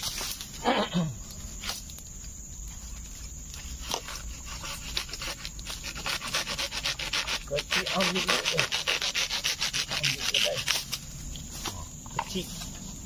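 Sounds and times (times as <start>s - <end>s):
hand saw sawing bamboo: 3.6s - 11.0s.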